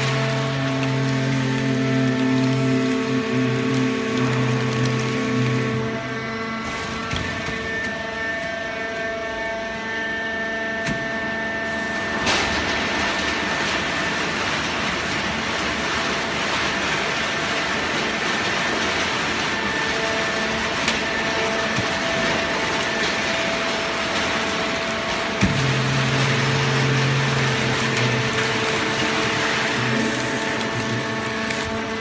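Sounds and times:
baler machine hum: 0.0 - 32.0.

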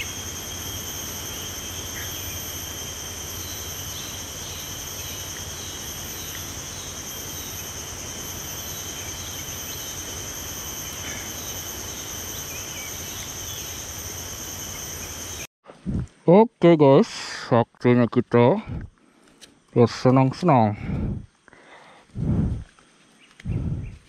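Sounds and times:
insects buzzing: 0.0 - 24.0.

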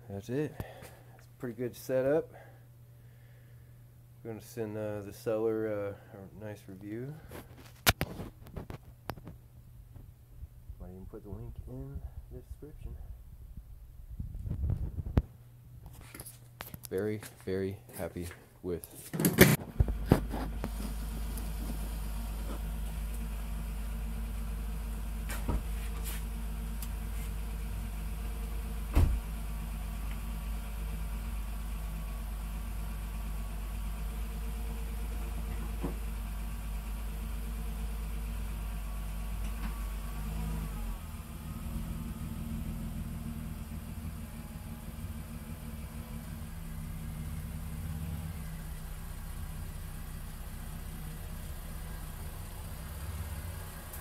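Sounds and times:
car engine idling: 19.6 - 54.0.

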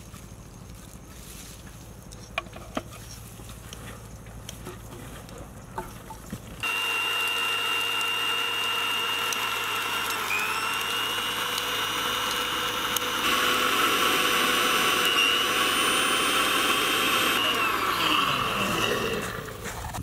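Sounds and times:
electric blender whirring: 6.6 - 20.0.

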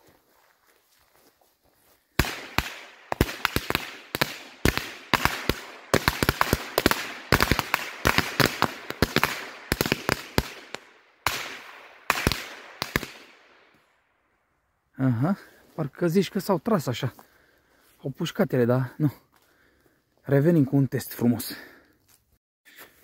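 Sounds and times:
firecrackers banging: 2.2 - 13.4.

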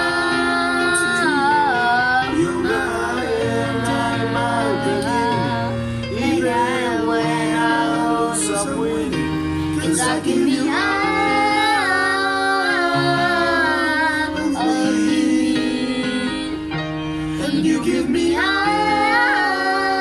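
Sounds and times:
girl singing into microphone: 0.0 - 2.7, 10.0 - 14.9, 18.3 - 20.0
man singing along: 0.0 - 12.2
instrumental backing track: 0.0 - 20.0.

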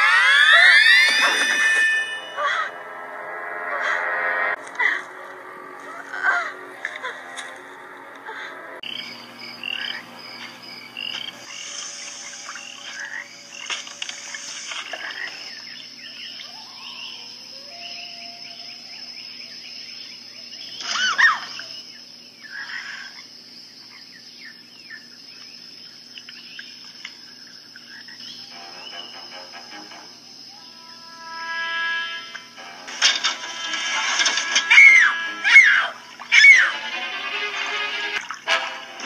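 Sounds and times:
high-pitched insect drone: 8.8 - 22.0, 27.3 - 36.5
frogs croaking and chirping: 8.8 - 32.6.

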